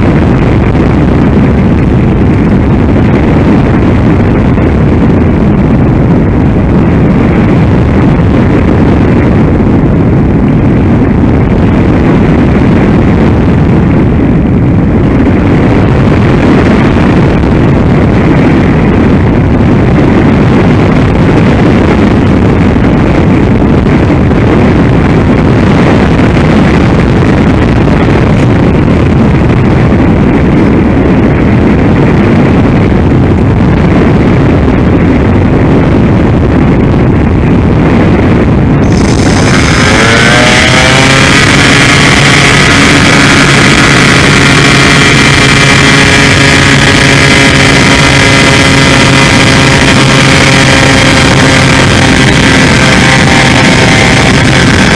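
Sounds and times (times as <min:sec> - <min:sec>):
airflow rush: 0:00.0 - 0:54.9
pitched whine: 0:00.0 - 0:54.9
motor noise: 0:36.7 - 0:54.9.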